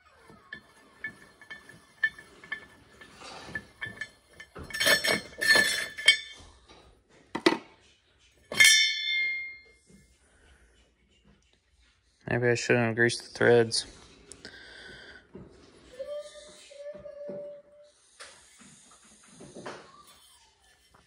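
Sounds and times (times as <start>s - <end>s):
metal parts clinking: 0.3s - 6.4s, 8.5s - 9.6s
ringing metal clang: 0.3s - 6.5s, 8.5s - 9.8s.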